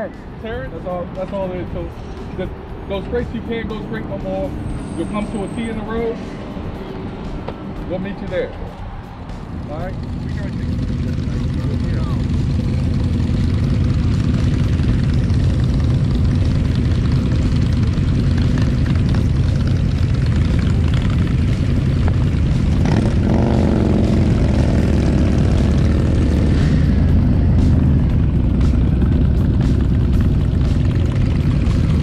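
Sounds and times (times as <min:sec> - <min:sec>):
motorcycle engines rumbling: 0:00.0 - 0:32.0.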